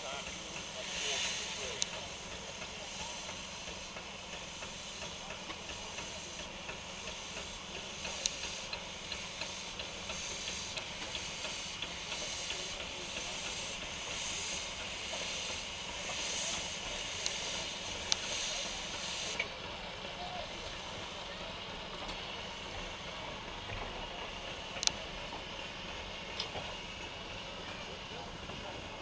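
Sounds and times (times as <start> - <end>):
steam locomotive hissing steam: 0.0 - 29.0.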